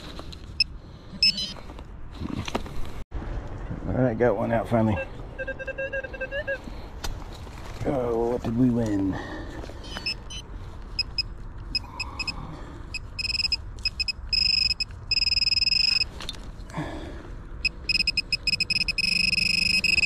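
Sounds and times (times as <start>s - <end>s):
metal detector pinpointer beeping: 1.2s - 1.6s, 9.8s - 10.4s, 11.0s - 16.1s, 17.6s - 20.0s
rustling of soil and leaves: 6.6s - 11.7s.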